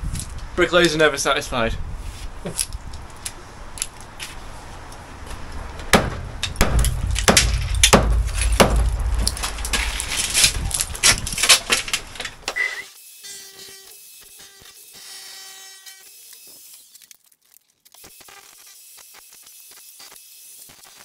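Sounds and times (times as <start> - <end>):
low rumble: 4.8 - 12.5
bricks knocking and clattering: 6.0 - 12.5.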